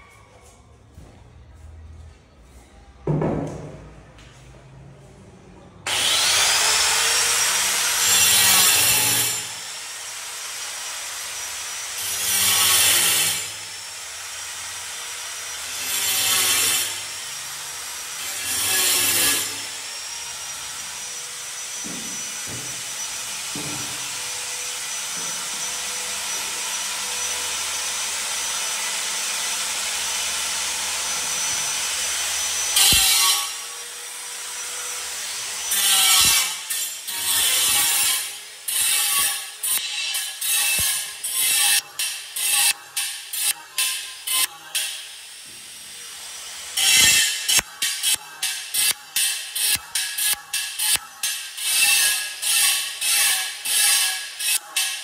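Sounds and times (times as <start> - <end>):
cutting or grinding: 5.9 - 9.7, 18.1 - 20.1, 30.2 - 45.4, 46.2 - 55.0.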